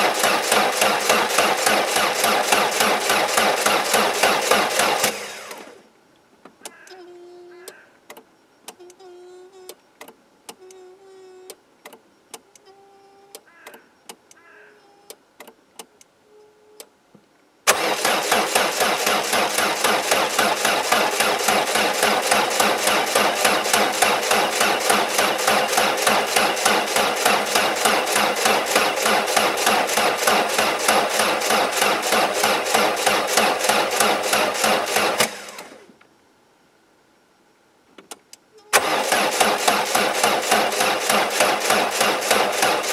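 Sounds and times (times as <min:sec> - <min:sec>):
car engine cranking by starter: 0:00.0 - 0:05.9, 0:17.7 - 0:36.0, 0:38.7 - 0:42.9.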